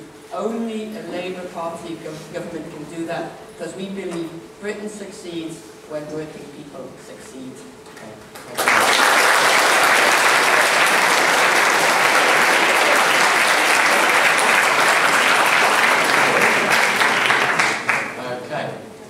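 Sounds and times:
audience applauding: 8.4s - 18.2s.

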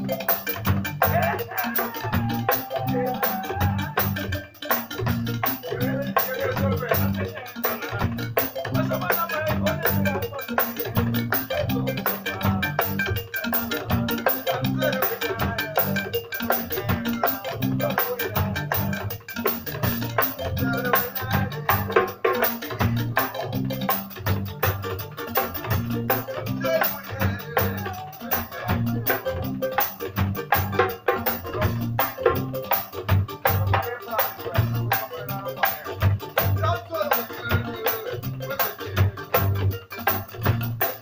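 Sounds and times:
pulsing electric bass: 0.0s - 7.3s, 8.0s - 10.2s, 10.9s - 16.2s, 16.8s - 22.2s, 22.8s - 33.8s, 34.6s - 36.8s
drum kit with cymbals: 0.0s - 41.0s.

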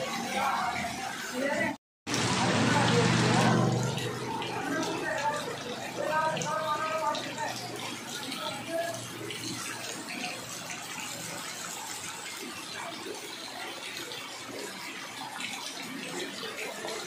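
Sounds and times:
heavy rain falling into floodwater: 0.0s - 17.0s.

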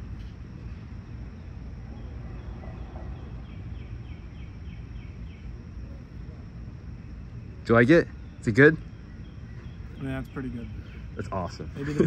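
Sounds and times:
low background rumble: 0.0s - 12.0s
bird chirping: 1.3s - 6.0s, 7.4s - 12.0s.

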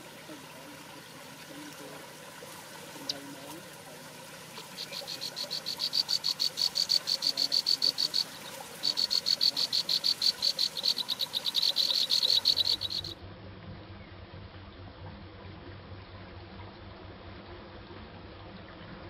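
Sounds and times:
animal chirping trill: 4.8s - 13.2s.

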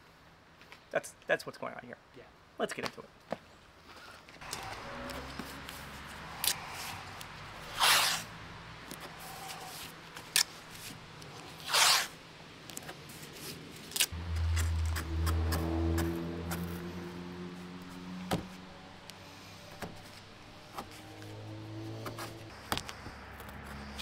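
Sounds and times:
tape ripping off roll: 7.7s - 8.3s, 11.6s - 12.1s
low steady hum: 14.1s - 18.0s.

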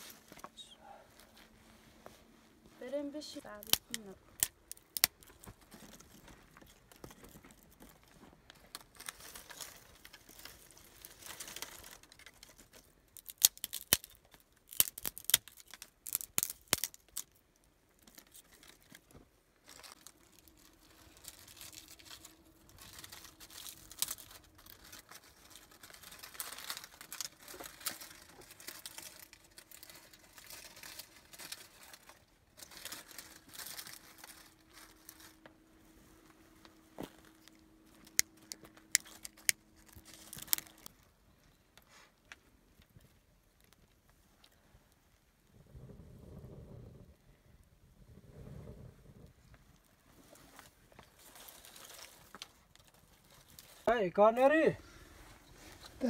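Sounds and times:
twigs rustling: 0.0s - 44.6s, 49.8s - 56.0s
dry twigs snapping: 3.5s - 7.9s, 8.7s - 17.4s, 18.0s - 35.5s, 37.0s - 41.0s.

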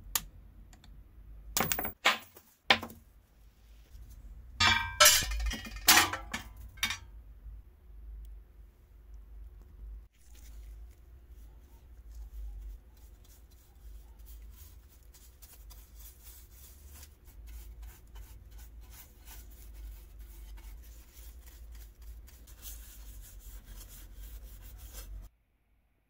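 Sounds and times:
paint brush scrubbing metal: 10.2s - 25.3s.

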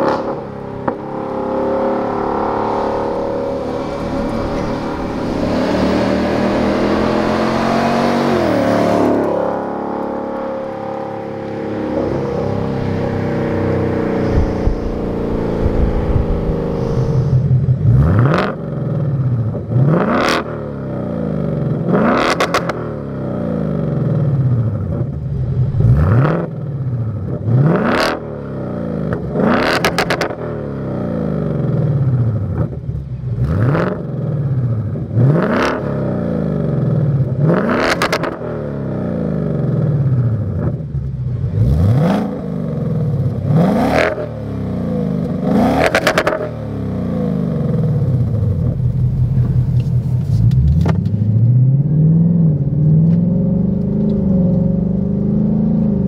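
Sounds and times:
car accelerating away: 0.0s - 56.0s
car engine revving: 0.0s - 56.0s.

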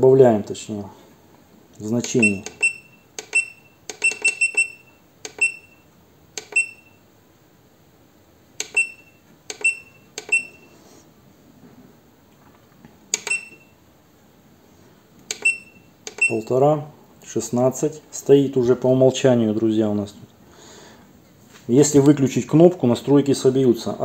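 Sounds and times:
keypad button clicks: 2.0s - 5.8s, 6.4s - 6.9s, 8.6s - 10.6s, 13.1s - 13.6s, 15.3s - 16.4s
short high electronic beeps: 2.2s - 5.8s, 8.7s - 10.8s, 15.4s - 16.4s.

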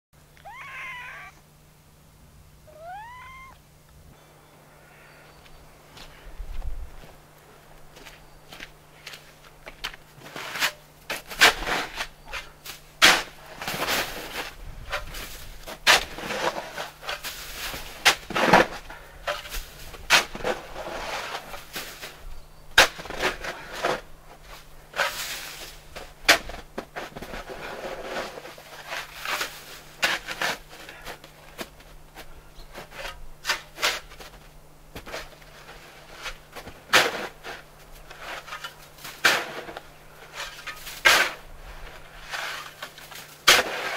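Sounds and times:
faint low hum: 0.2s - 10.3s
shovel crunching and scraping snow: 10.2s - 22.2s, 22.8s - 43.9s.

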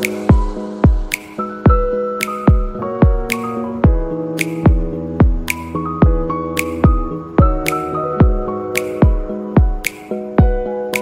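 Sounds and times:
electronic music with steady beat: 0.0s - 11.0s.

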